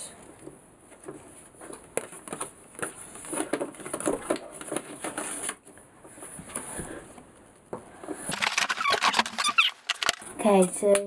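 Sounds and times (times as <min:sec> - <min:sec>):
paper and cardboard rustling: 0:01.0 - 0:05.8, 0:08.3 - 0:10.3.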